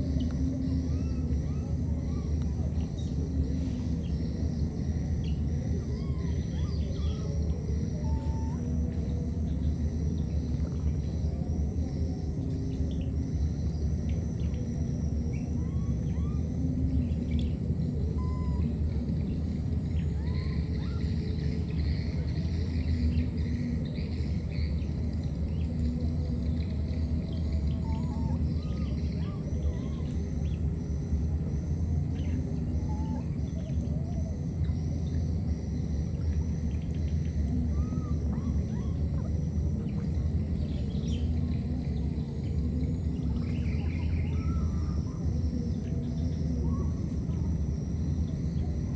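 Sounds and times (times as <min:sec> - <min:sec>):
faint bird calls: 0:00.0 - 0:48.9
high insect drone: 0:00.0 - 0:48.9
steady low rumble: 0:00.0 - 0:48.9
high pulsing call: 0:14.5 - 0:26.4
bird chirps: 0:15.4 - 0:19.4.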